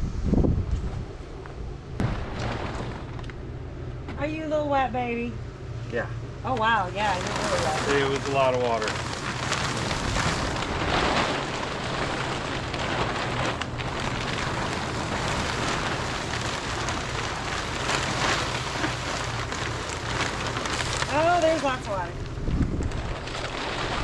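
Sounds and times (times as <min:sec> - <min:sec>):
water splashing off plastic sheeting: 0:02.0 - 0:03.4, 0:06.5 - 0:24.0.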